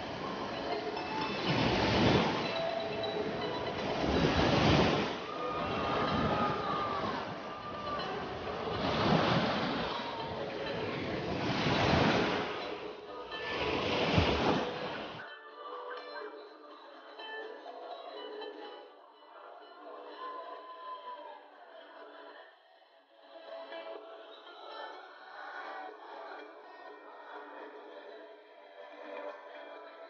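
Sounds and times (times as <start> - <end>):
small waves washing on beach: 0.0 - 15.2
quiet music: 0.0 - 30.0.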